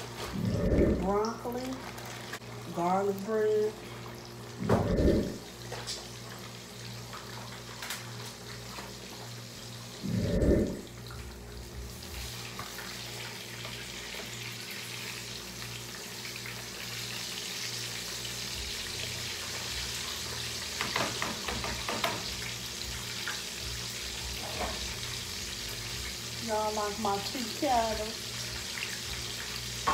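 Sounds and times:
low thump: 0:04.6 - 0:05.2
fish frying in hot oil: 0:05.4 - 0:10.0, 0:10.9 - 0:29.9.

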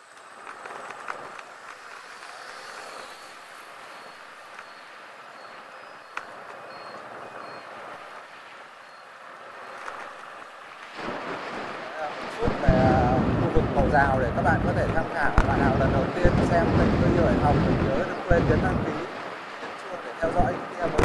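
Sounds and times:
traffic: 0:00.0 - 0:21.0
wind rush: 0:10.9 - 0:21.0.

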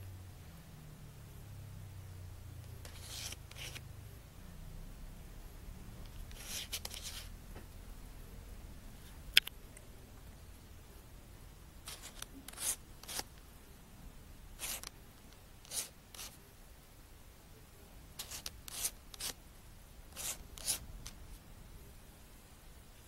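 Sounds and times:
fingers rubbing rubber eyecup: 0:18.2 - 0:19.4.

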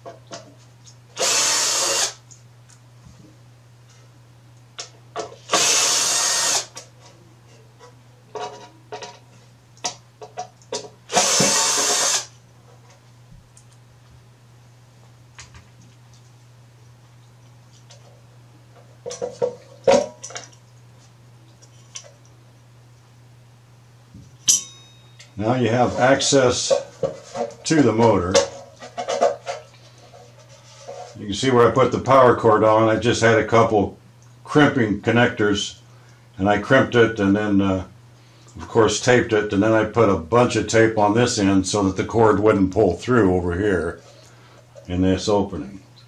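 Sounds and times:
steady low hum: 0:00.0 - 0:46.0
cordless drill spinning screws: 0:01.2 - 0:02.2, 0:05.5 - 0:06.8, 0:11.1 - 0:12.3
sharp metallic clink: 0:24.4 - 0:25.4.

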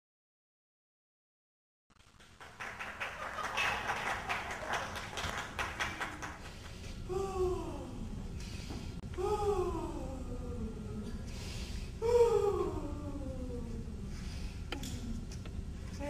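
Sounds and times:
falling vocal cry: 0:12.0 - 0:14.1.

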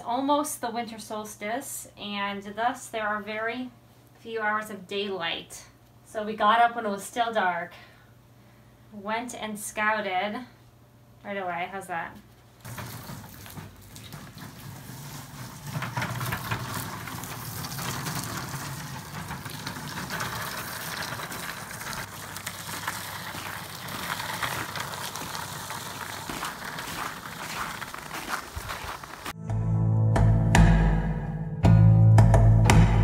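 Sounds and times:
carts rolling on gritty snow: 0:12.6 - 0:29.4
footsteps in snow: 0:22.0 - 0:29.4.

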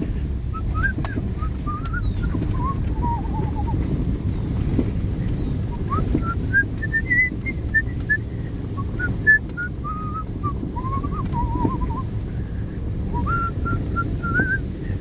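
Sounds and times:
car rolling on dirt road: 0:00.0 - 0:15.0
person whistling a tune: 0:00.5 - 0:03.8, 0:05.7 - 0:12.1, 0:13.1 - 0:14.7.

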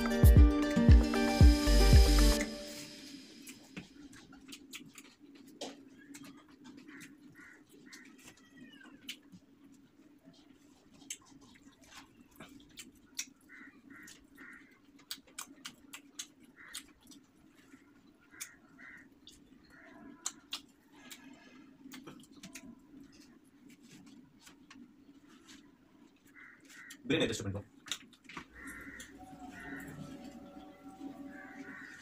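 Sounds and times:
sharp wet clicks: 0:03.4 - 0:08.1, 0:10.9 - 0:23.8, 0:27.7 - 0:29.8
chewing and lip smacks: 0:03.4 - 0:25.4
short bird calls: 0:28.5 - 0:30.6.

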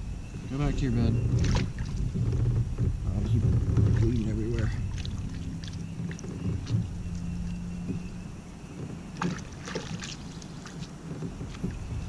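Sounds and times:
water splashing: 0:01.2 - 0:02.2, 0:03.1 - 0:07.6, 0:09.0 - 0:12.0.

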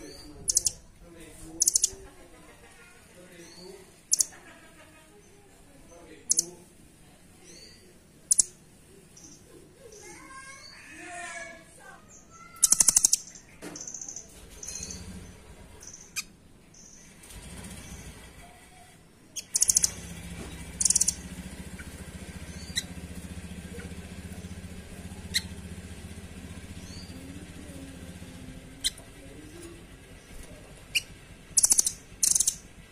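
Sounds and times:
bird rattling trills: 0:00.5 - 0:00.8, 0:01.6 - 0:02.0, 0:04.1 - 0:04.4, 0:06.3 - 0:06.5, 0:08.3 - 0:08.5, 0:12.5 - 0:18.2, 0:19.4 - 0:27.2, 0:29.6 - 0:32.8
low steady hum: 0:19.6 - 0:32.9
bird sharp ticks: 0:31.6 - 0:32.6.

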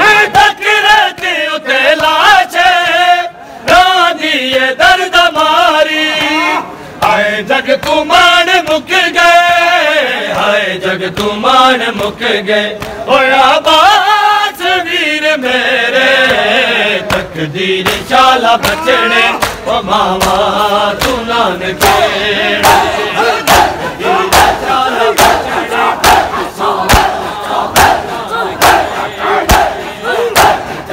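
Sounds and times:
men chanting in unison: 0:00.0 - 0:30.9
hands slapping bare chests: 0:12.8 - 0:13.0, 0:17.1 - 0:18.8, 0:19.4 - 0:24.6, 0:25.2 - 0:27.2, 0:29.5 - 0:30.8.

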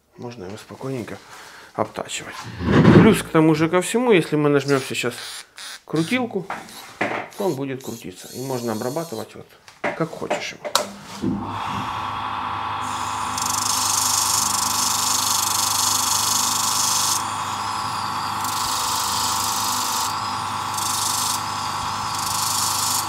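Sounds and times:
power tool motor whining: 0:04.8 - 0:09.2, 0:11.3 - 0:23.0.

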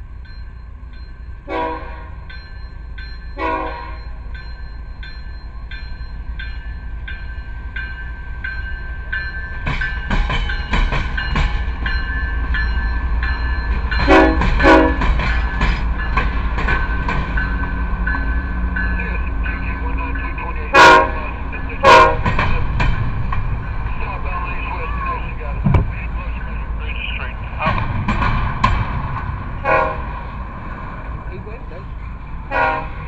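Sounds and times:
locomotive engine and wheels passing: 0:00.0 - 0:33.0
locomotive air horn blasts: 0:01.5 - 0:02.2, 0:03.4 - 0:04.1, 0:14.1 - 0:15.1, 0:20.7 - 0:22.3, 0:29.6 - 0:30.1, 0:32.5 - 0:33.0.

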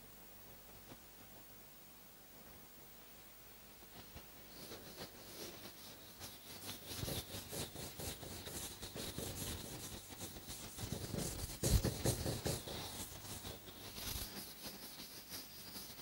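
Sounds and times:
duster rubbing on chalkboard: 0:04.5 - 0:16.0.

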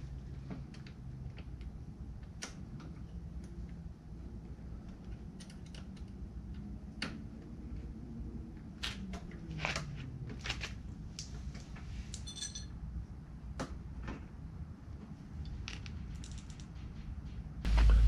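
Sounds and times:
faint low hum: 0:17.6 - 0:18.0.

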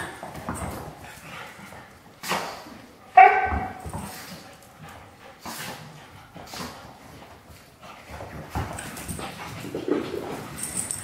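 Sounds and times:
dog yipping: 0:03.2 - 0:03.8.

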